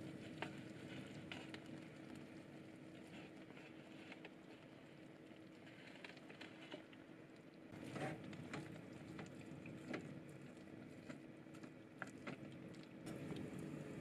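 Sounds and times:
chopsticks stirring: 0.0 - 1.7.

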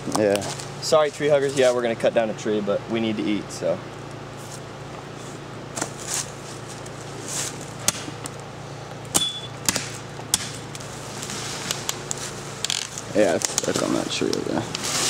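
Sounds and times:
leaves and branches rustling: 4.0 - 8.6, 9.9 - 15.0
knife chopping wood: 7.8 - 8.3, 9.1 - 10.7.

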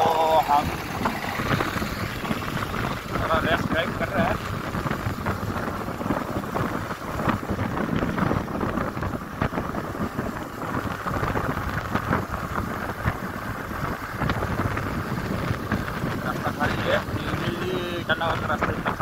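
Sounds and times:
motorcycle rumble: 0.0 - 19.0
wind buffeting microphone: 0.0 - 19.0.

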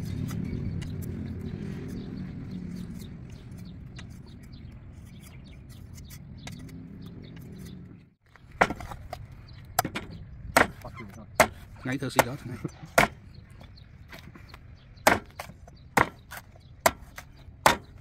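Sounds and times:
blade chopping coconut: 9.8 - 13.2, 15.0 - 18.0.

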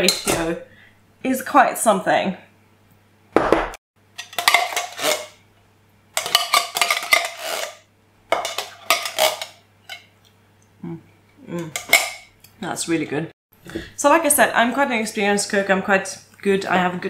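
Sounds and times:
metal spoon scraping a tin: 4.2 - 5.4, 6.2 - 7.8, 8.4 - 10.0.

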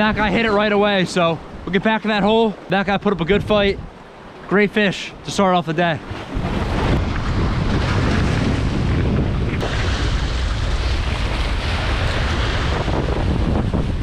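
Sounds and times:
surf washing against rocks: 0.0 - 14.0
wind on microphone: 3.2 - 4.1, 6.0 - 14.0.

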